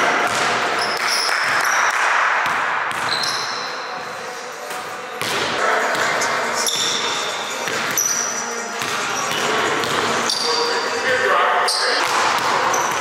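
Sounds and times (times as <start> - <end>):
basketballs bouncing on wooden floor: 0.2 - 3.4, 8.8 - 10.3, 12.0 - 13.0
sneaker squeaks: 0.3 - 2.0, 2.9 - 4.8, 5.9 - 13.0.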